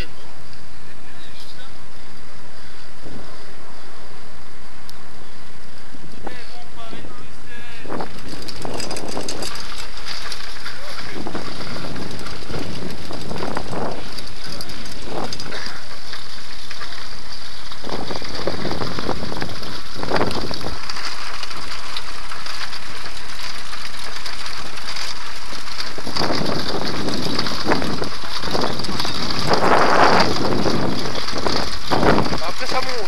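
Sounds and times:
handbike rattling over cobblestones: 7.6 - 33.0.

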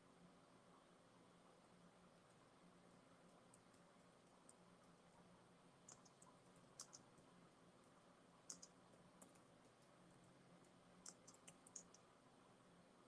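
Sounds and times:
faint keyboard typing: 2.2 - 12.1.

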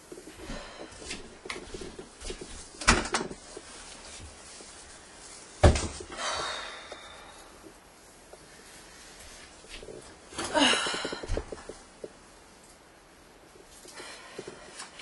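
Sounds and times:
clothing rustle: 0.0 - 15.0
furniture knocks and thumps: 5.6 - 6.1.

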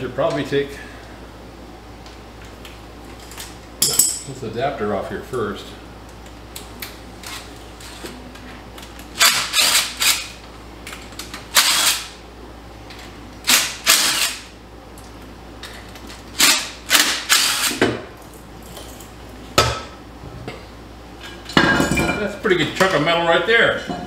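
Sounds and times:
cordless power tool bursts: 11.5 - 12.1, 13.5 - 14.5, 16.4 - 17.8.

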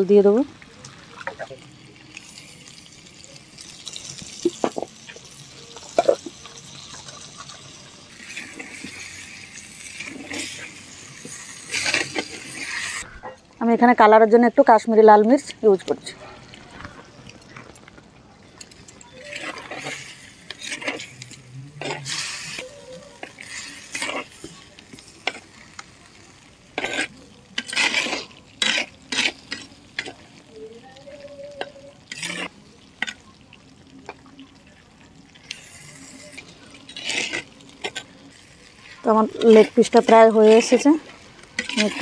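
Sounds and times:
gravy sizzling: 0.0 - 42.0
spatula scraping a pot: 8.2 - 13.1, 19.0 - 24.6, 26.7 - 30.2, 31.5 - 32.6, 35.5 - 40.9, 41.6 - 42.0.

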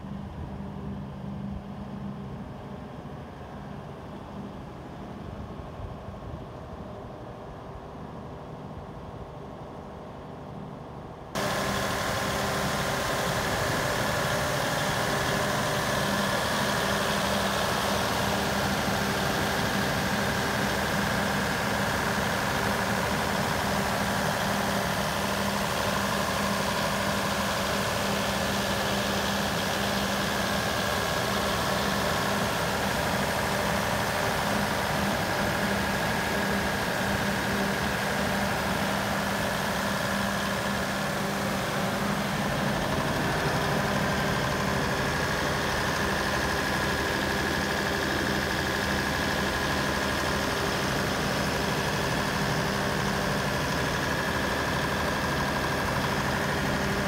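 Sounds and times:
diesel generator engine droning: 0.0 - 57.0.

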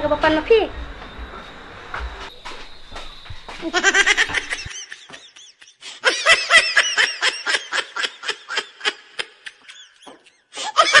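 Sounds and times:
high-pitched laughter: 3.6 - 11.0.

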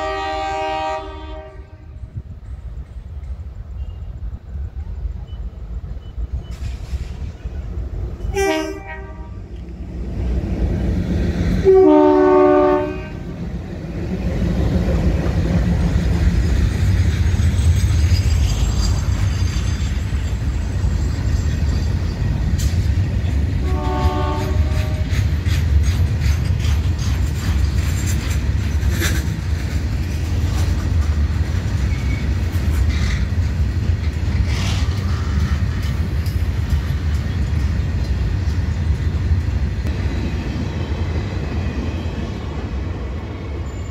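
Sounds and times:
locomotive horn blast: 0.0 - 2.0, 8.2 - 9.4, 11.6 - 13.3, 23.6 - 25.2
train rumbling: 0.0 - 43.9
wheels clicking over rail joints: 13.3 - 40.0.

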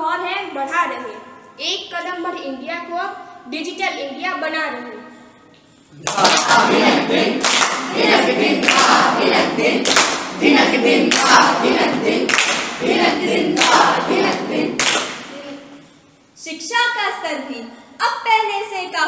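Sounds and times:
group singing: 6.0 - 15.8.

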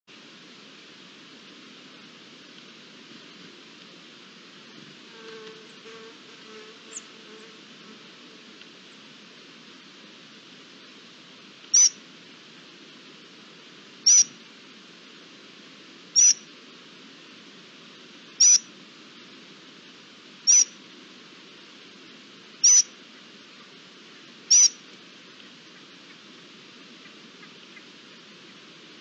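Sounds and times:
low background hiss: 0.1 - 29.0
high-pitched animal call: 11.7 - 12.0, 14.1 - 14.3, 16.2 - 16.4, 18.4 - 18.6, 20.5 - 20.7, 22.6 - 22.9, 24.5 - 24.8.

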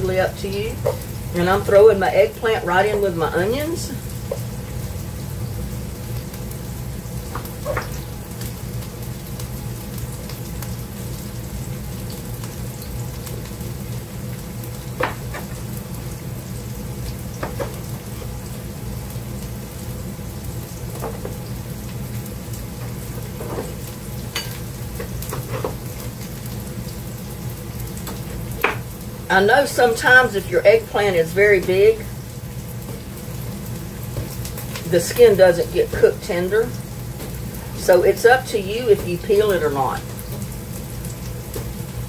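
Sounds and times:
onions sizzling in a skillet: 0.0 - 42.0.

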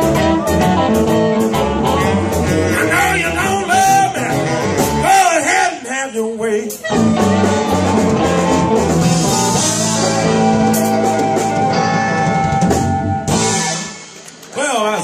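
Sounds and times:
electric guitar: 0.0 - 14.6
blues band playing: 0.0 - 15.0
drums: 0.0 - 15.0
harmonica: 1.9 - 5.8, 6.6 - 13.6.

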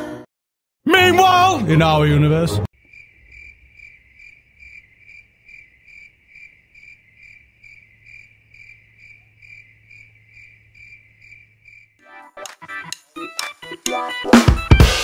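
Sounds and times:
crickets chirping: 2.8 - 12.0.

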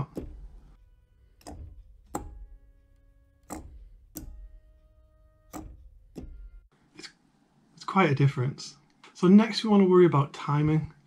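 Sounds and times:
organ keys clicking: 0.0 - 6.7.

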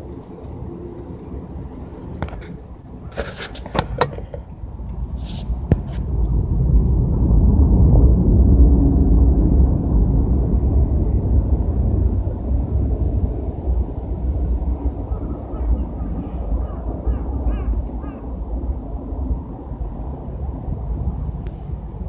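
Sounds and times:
rustles: 2.2 - 6.1
loud low rumble: 4.4 - 22.0.

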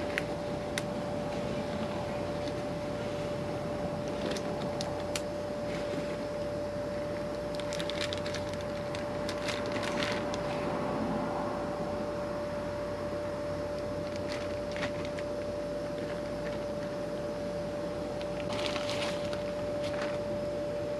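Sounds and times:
constant hum: 0.0 - 20.9
plastic bag crinkling: 7.4 - 10.5, 14.0 - 15.2, 18.4 - 20.2.

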